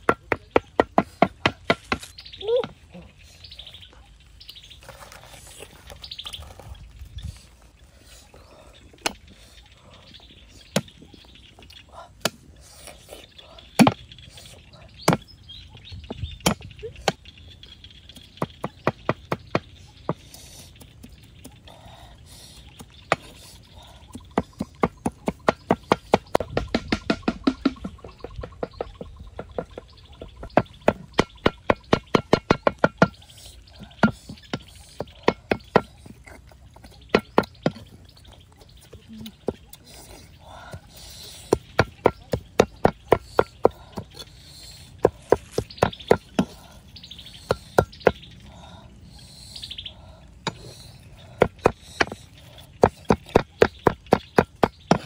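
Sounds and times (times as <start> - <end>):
cleaver chopping on wooden block: 24.6 - 28.8, 30.4 - 33.2, 51.4 - 52.2.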